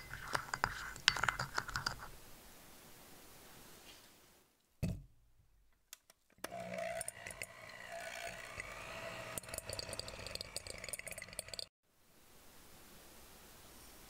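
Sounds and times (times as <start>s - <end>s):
electric hand mixer running: 6.4s - 11.4s.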